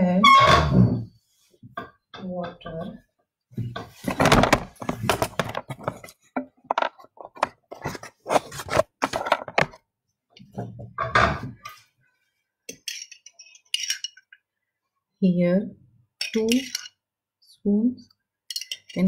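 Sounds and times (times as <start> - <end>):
metal spoon knocking on cups: 18.5 - 19.0.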